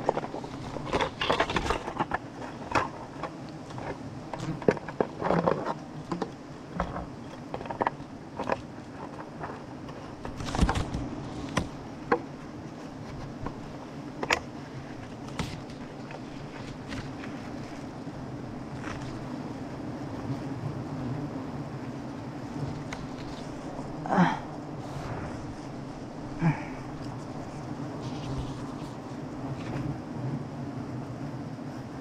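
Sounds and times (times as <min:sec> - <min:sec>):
honeybees buzzing: 0:00.0 - 0:32.0
rustling of branches: 0:00.0 - 0:32.0.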